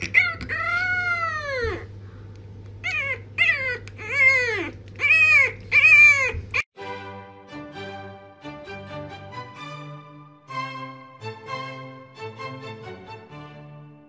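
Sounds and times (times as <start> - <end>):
puppy howling: 0.0 - 1.9, 2.8 - 6.7.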